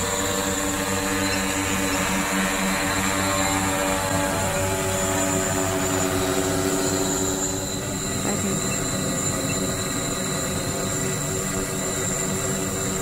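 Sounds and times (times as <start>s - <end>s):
drone propellers humming: 0.0s - 13.0s.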